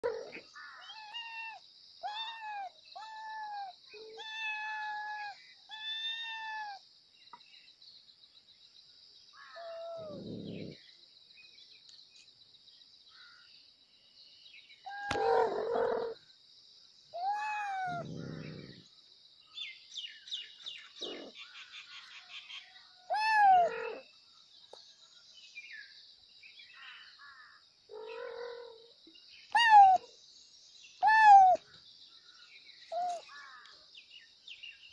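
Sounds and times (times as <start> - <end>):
kittens meowing: 0.0 - 6.8, 9.6 - 10.8, 17.2 - 18.8, 23.1 - 24.0, 29.5 - 30.1, 31.0 - 31.6.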